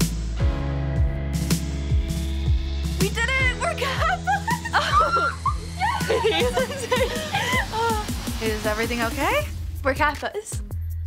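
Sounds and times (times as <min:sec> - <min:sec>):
music with deep bass drum: 0:00.0 - 0:11.0.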